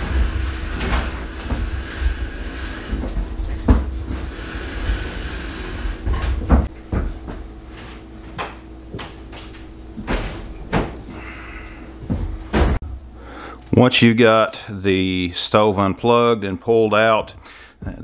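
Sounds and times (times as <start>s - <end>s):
electric range scraping across floor: 0.0s - 12.5s.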